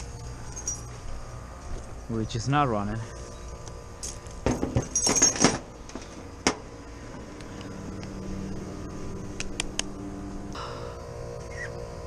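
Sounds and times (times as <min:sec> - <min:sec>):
low steady hum: 0:00.0 - 0:12.0
metal tools clinking: 0:00.2 - 0:01.0, 0:04.0 - 0:06.2.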